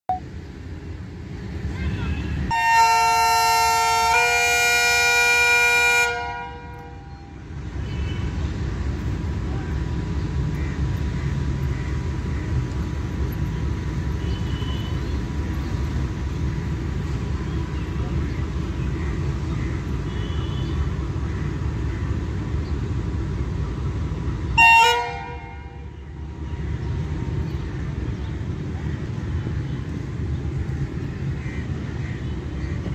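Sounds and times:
diesel locomotive idling: 0:00.2 - 0:32.9
train horn blast: 0:02.5 - 0:07.3, 0:24.6 - 0:26.0.

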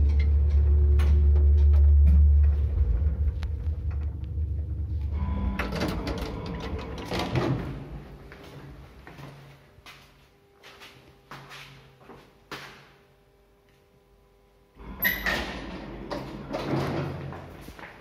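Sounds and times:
sliding lift doors rattling open: 0:00.0 - 0:08.0, 0:14.9 - 0:17.6
lift car rumbling: 0:00.0 - 0:08.3, 0:14.8 - 0:17.7.

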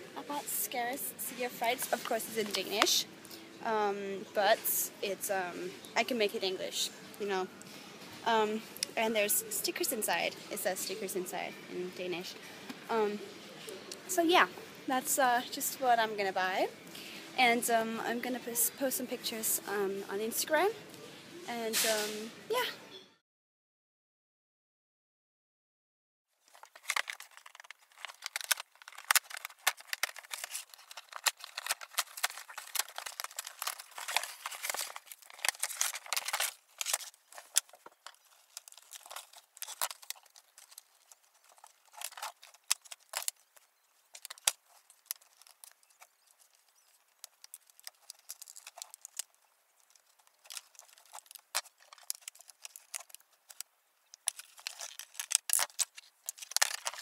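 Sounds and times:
packaging crinkling and clicking: 0:26.5 - 0:57.0
scissors snipping packaging: 0:26.6 - 0:43.4, 0:44.1 - 0:49.3, 0:54.2 - 0:57.0.

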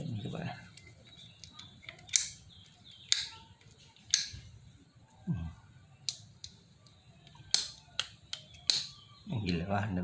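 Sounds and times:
sharp metal clicks: 0:00.8 - 0:04.4, 0:06.0 - 0:09.0.

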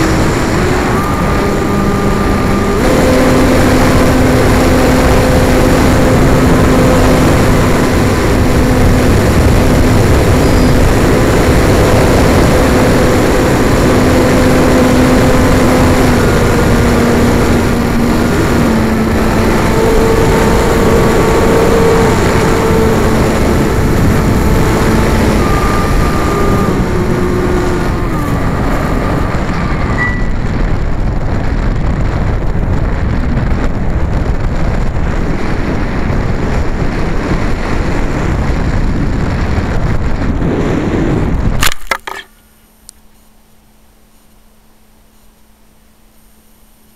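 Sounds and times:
wind rushing over microphone: 0:00.0 - 0:46.5
propeller motor whine: 0:00.0 - 0:46.9.

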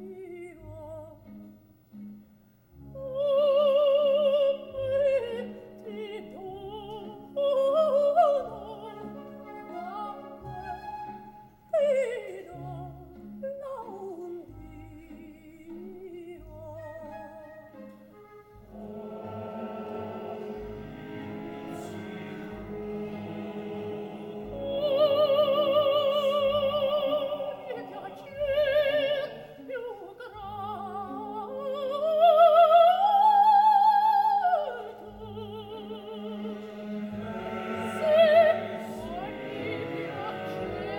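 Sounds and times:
soprano singing with vibrato: 0:00.0 - 0:01.4, 0:02.9 - 0:17.9, 0:18.6 - 0:40.9
opera orchestra: 0:00.0 - 0:40.9
chorus of voices: 0:18.7 - 0:30.3, 0:34.5 - 0:40.9.

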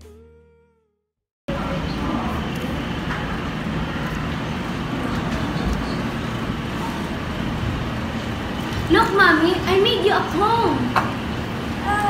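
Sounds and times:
low rumbling background noise: 0:01.5 - 0:12.0.

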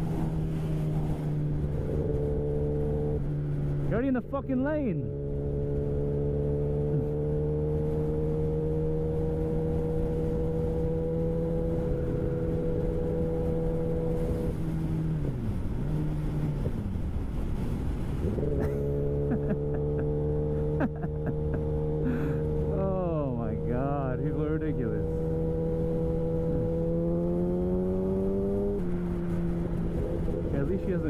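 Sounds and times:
motorcycle engine cruising: 0:00.0 - 0:31.0
wind and road noise: 0:00.0 - 0:31.0.

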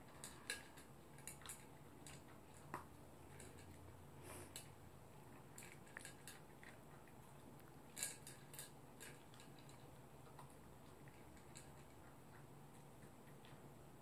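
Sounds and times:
dog eating from a bowl: 0:00.0 - 0:14.0.

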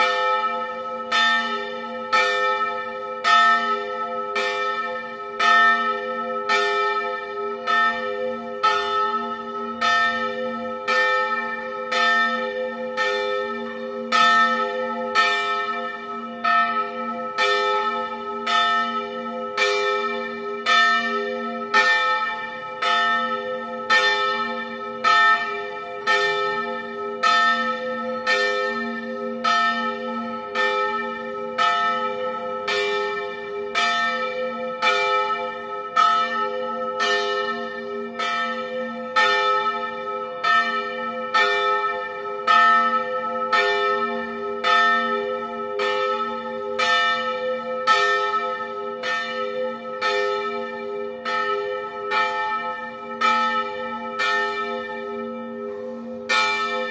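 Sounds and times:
church bells ringing: 0:00.0 - 0:56.9.

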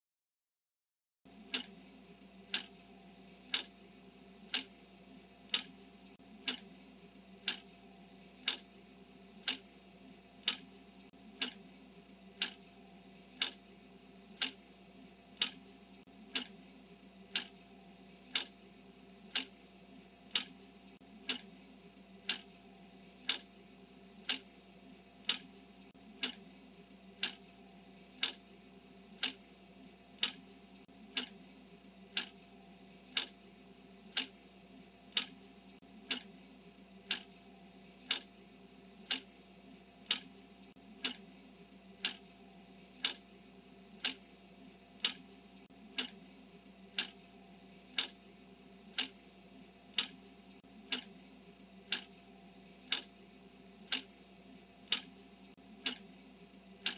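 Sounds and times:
clock ticking: 0:01.3 - 0:01.8, 0:02.4 - 0:02.8, 0:03.4 - 0:03.8, 0:04.4 - 0:04.8, 0:05.4 - 0:06.8, 0:07.4 - 0:08.7, 0:09.4 - 0:11.7, 0:12.3 - 0:13.7, 0:14.3 - 0:16.6, 0:17.3 - 0:18.6, 0:19.3 - 0:19.6, 0:20.2 - 0:21.6, 0:22.2 - 0:22.6, 0:23.2 - 0:23.6, 0:24.2 - 0:24.6, 0:25.2 - 0:26.5, 0:27.2 - 0:28.5, 0:29.1 - 0:31.4, 0:32.0 - 0:32.4, 0:33.0 - 0:33.4, 0:34.1 - 0:36.4, 0:37.0 - 0:37.4, 0:38.0 - 0:38.3, 0:39.0 - 0:39.4, 0:40.0 - 0:41.3, 0:42.0 - 0:43.3, 0:43.9 - 0:44.4, 0:45.0 - 0:46.3, 0:46.9 - 0:47.2, 0:47.9 - 0:48.2, 0:48.9 - 0:49.3, 0:49.9 - 0:51.2, 0:51.8 - 0:53.1, 0:53.8 - 0:56.2
faint steady hum: 0:01.3 - 0:56.9.

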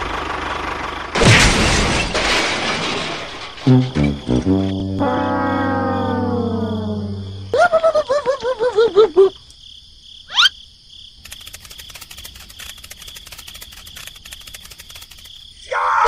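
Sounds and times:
crickets chirping: 0:03.6 - 0:16.0
cartoon warbling tones: 0:04.1 - 0:09.3, 0:10.3 - 0:10.5
fine rapid clicking: 0:11.2 - 0:15.4.

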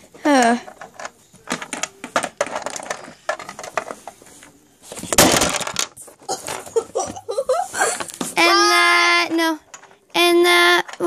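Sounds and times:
plastic toy pieces clattering: 0:00.4 - 0:04.2, 0:05.0 - 0:06.8, 0:09.3 - 0:10.0.

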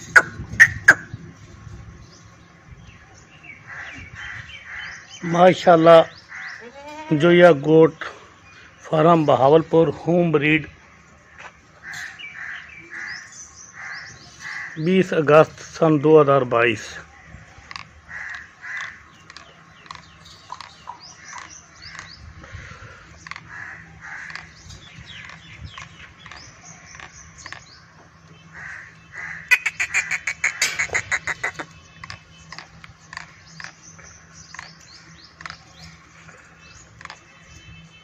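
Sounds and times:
loud rapid pulsing bird call: 0:00.0 - 0:01.2, 0:28.4 - 0:32.2
birds cawing and chirping: 0:00.0 - 0:38.0.

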